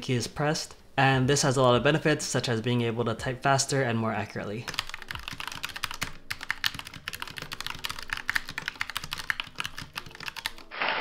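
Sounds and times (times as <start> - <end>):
mechanical keyboard typing: 4.6 - 10.9.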